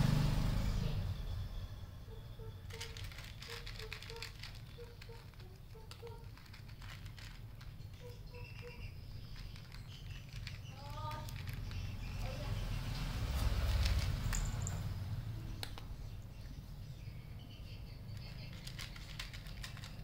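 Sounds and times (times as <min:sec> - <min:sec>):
cat crunching dry kibble: 0:02.6 - 0:12.0, 0:13.4 - 0:14.6, 0:18.2 - 0:20.0.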